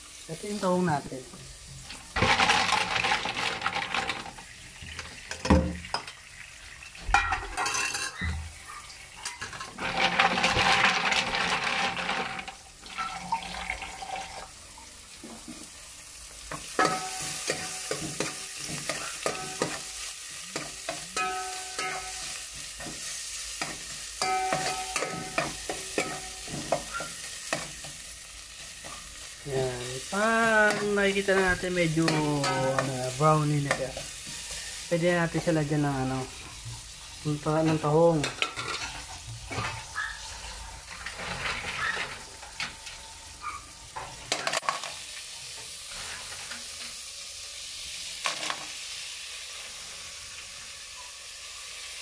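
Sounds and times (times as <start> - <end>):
vegetables sizzling in a pot: 0.0 - 52.0
tap water running: 1.4 - 17.0
metal spoon scraping a pot: 7.3 - 8.4, 20.6 - 27.7, 38.2 - 43.0.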